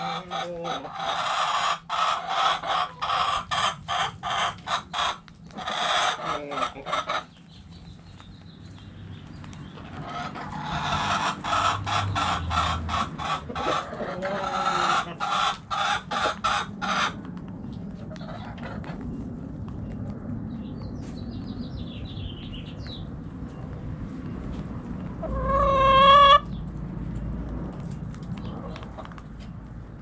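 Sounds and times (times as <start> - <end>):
hen clucking: 0.0 - 7.7, 9.4 - 17.3, 18.0 - 19.1, 25.1 - 26.6.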